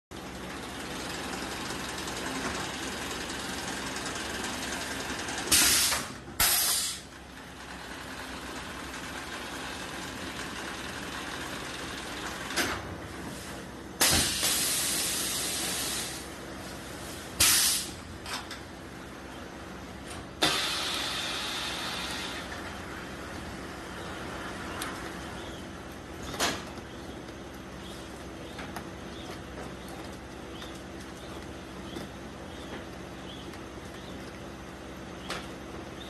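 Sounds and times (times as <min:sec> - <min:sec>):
machine running with steady hiss: 0:00.2 - 0:18.1, 0:19.6 - 0:25.2
loud bursts of hissing: 0:05.5 - 0:07.1, 0:14.0 - 0:16.4, 0:17.3 - 0:18.0, 0:20.4 - 0:22.5.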